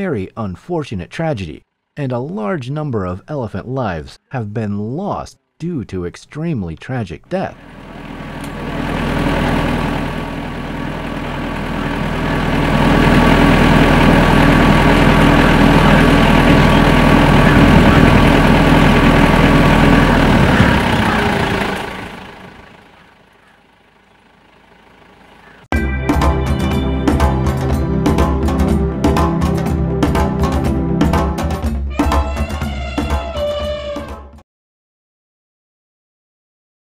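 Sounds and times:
low mechanical hum: 0:07.2 - 0:25.7.

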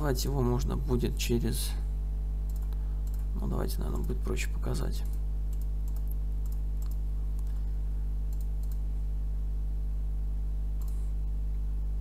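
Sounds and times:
low electrical hum: 0:00.0 - 0:12.0
computer mouse clicks: 0:02.4 - 0:03.3, 0:05.0 - 0:07.6, 0:08.3 - 0:08.8, 0:10.8 - 0:11.1.

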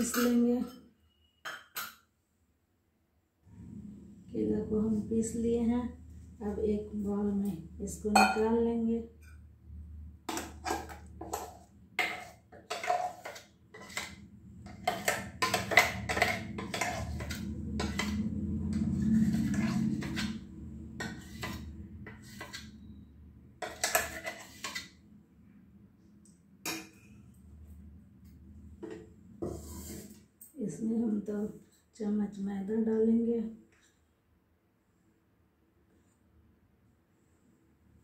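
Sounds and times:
spoon scraping steel jar: 0:10.4 - 0:23.0, 0:23.6 - 0:25.0.

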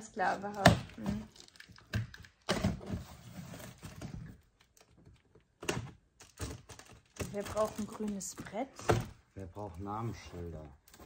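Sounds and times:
plastic wrap rustling: 0:06.2 - 0:08.8.

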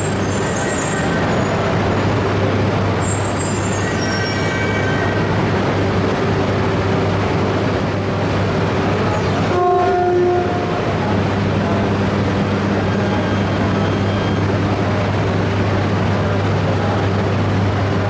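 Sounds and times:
faint high squeals: 0:00.0 - 0:01.8, 0:02.9 - 0:05.3, 0:12.9 - 0:14.5
train hum at platform: 0:00.0 - 0:18.0
short tone: 0:12.9 - 0:14.5.

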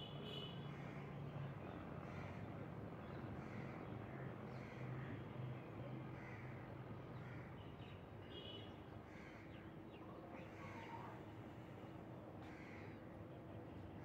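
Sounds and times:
crows cawing: 0:12.4 - 0:13.0.

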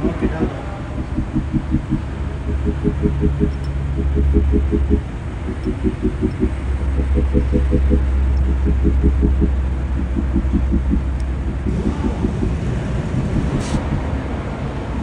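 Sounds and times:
low machine rumble: 0:00.0 - 0:15.0
pulsing hum: 0:00.0 - 0:15.0
brief hiss: 0:13.6 - 0:13.8.

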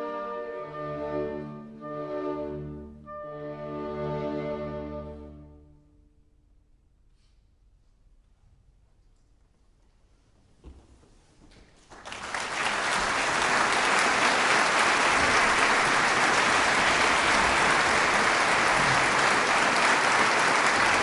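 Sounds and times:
audience applauding: 0:11.8 - 0:21.0.

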